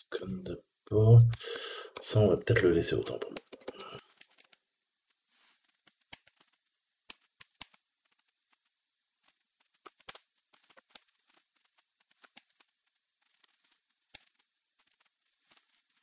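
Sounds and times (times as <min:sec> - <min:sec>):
keystrokes on computer keyboard: 0:03.0 - 0:04.5.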